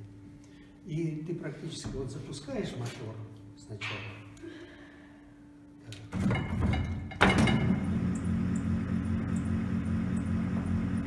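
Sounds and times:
motor low electric hum: 0:05.4 - 0:11.0.

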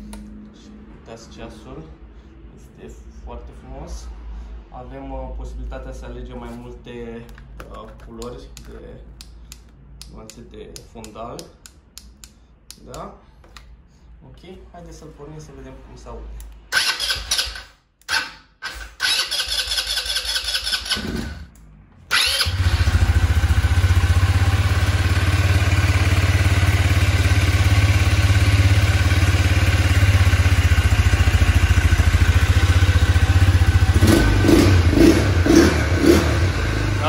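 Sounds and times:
electric starter cranking: 0:16.7 - 0:21.5, 0:22.1 - 0:23.2
engine idling: 0:22.5 - 0:34.1.

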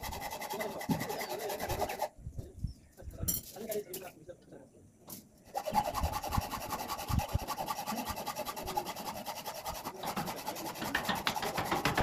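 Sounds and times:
hand tool rasping on steel gate: 0:05.5 - 0:12.0.

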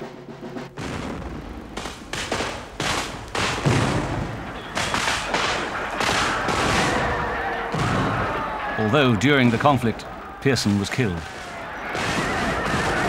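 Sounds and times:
echoing gunshots: 0:00.7 - 0:13.0
deep boom: 0:00.8 - 0:08.4
battle noise: 0:00.8 - 0:13.0.

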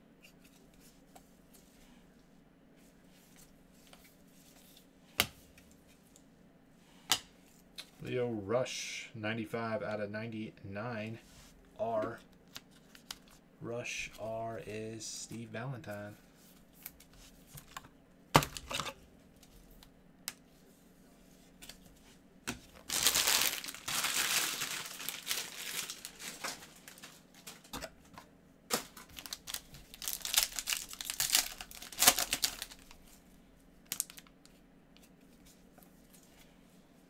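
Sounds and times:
wrapper tearing and crinkling: 0:22.8 - 0:27.7, 0:28.7 - 0:33.0, 0:33.9 - 0:34.3.

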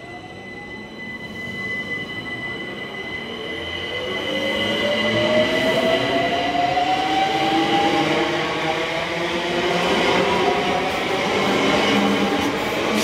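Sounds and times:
steady high tone: 0:00.0 - 0:07.1.

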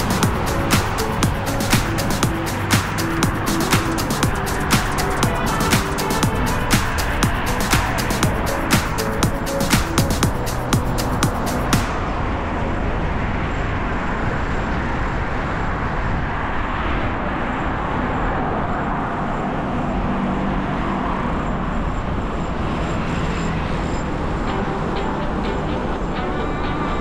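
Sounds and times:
dance music with sharp beats: 0:00.0 - 0:12.0
road traffic noise: 0:00.0 - 0:27.0.

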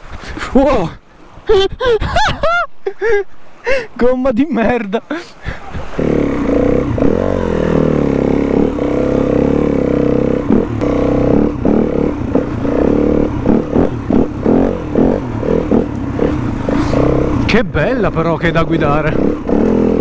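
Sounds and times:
dirt bike engine revving: 0:05.8 - 0:20.0.

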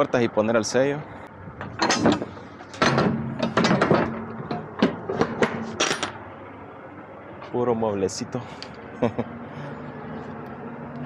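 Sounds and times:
metal door latches clanking: 0:01.6 - 0:06.2.

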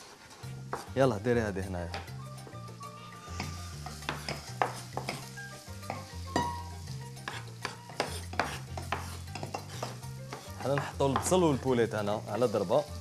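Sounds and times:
chicken sizzling in a pot: 0:00.0 - 0:13.0
knife chopping on wooden board: 0:03.4 - 0:05.3, 0:07.2 - 0:11.4.

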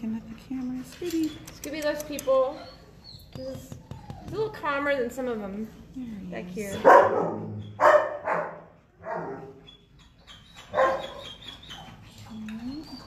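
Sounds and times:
dog barking: 0:06.8 - 0:09.5, 0:10.7 - 0:11.2.

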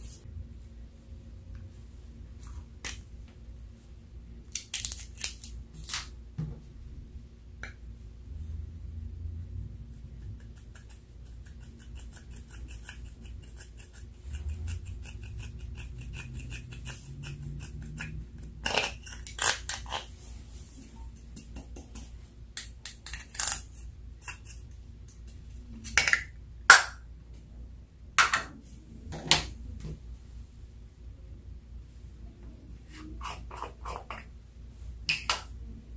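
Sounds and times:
tool scratching pressed powder: 0:10.2 - 0:20.0.

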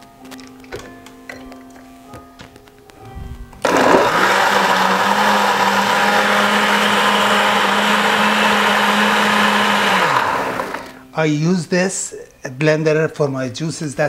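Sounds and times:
blender crushing ice: 0:03.6 - 0:11.0.

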